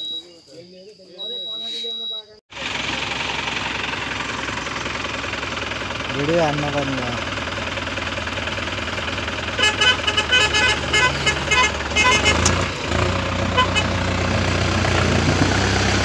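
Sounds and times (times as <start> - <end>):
vehicle engines under load: 0.0 - 16.0
vehicle horn short toots: 9.5 - 12.6, 13.5 - 14.0.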